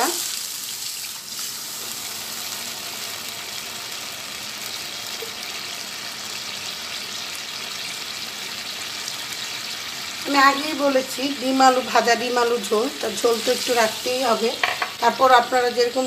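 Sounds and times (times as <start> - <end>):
water pouring into a pan: 0.0 - 10.3.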